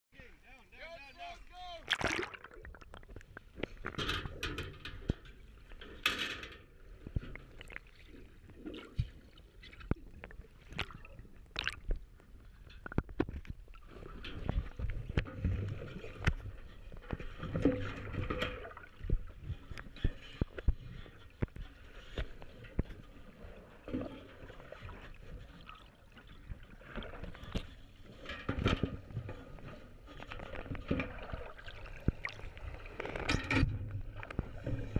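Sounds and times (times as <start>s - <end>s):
low water rush: 0.3s - 6.5s.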